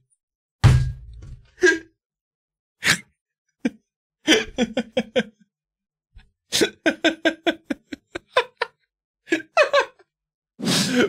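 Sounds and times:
man laughing hard: 0:03.6 - 0:05.4, 0:06.5 - 0:10.1.

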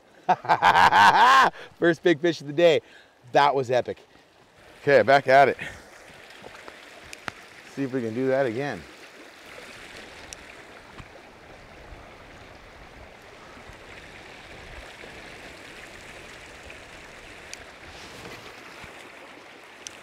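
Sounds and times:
faint ticks: 0:06.3 - 0:07.4.

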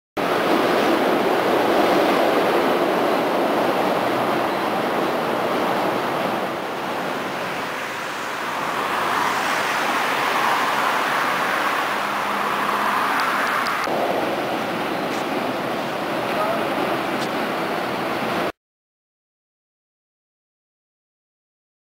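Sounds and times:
road traffic rushing: 0:00.2 - 0:18.5
car driving by: 0:07.2 - 0:14.2.

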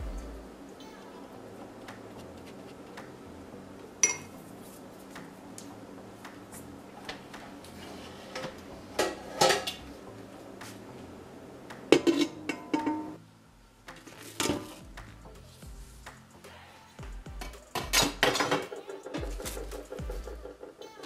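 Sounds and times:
utensils and dishes clinking: 0:04.0 - 0:04.3, 0:07.8 - 0:09.9, 0:11.9 - 0:13.2, 0:17.7 - 0:21.0.

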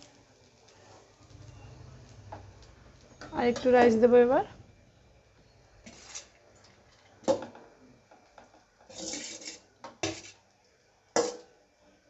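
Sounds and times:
rice sliding off plate: 0:05.8 - 0:06.4, 0:08.9 - 0:10.4.

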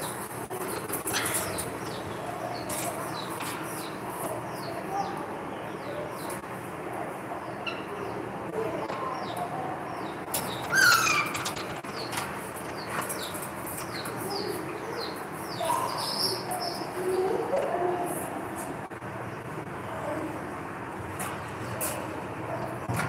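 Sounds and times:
birds chirping: 0:00.0 - 0:23.0
loud falling bird call: 0:10.5 - 0:12.1.

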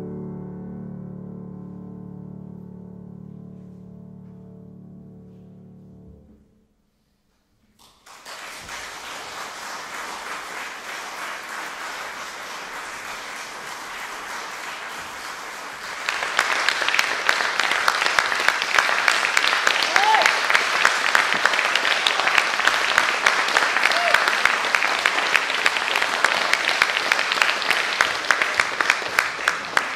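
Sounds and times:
piano chord: 0:00.0 - 0:06.6
audience applause: 0:07.8 - 0:29.9.

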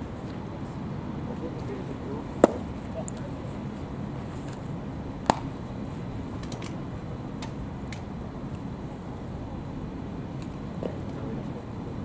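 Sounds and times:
low background noise: 0:00.0 - 0:12.0
baseball smacking into mitt: 0:02.4 - 0:02.6, 0:05.2 - 0:05.5.

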